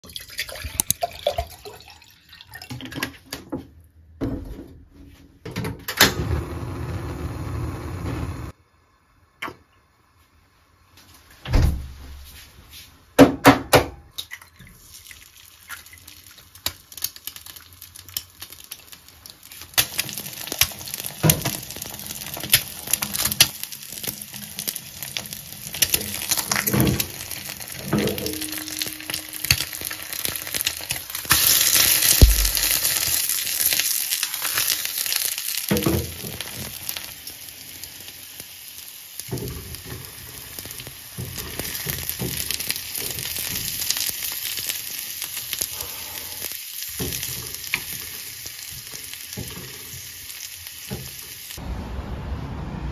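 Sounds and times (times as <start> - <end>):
egg sizzling in a pan: 14.6 - 51.6.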